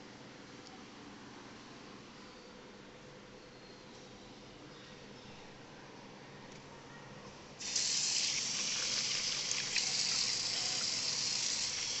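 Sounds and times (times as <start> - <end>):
tap water running into sink: 7.6 - 12.0.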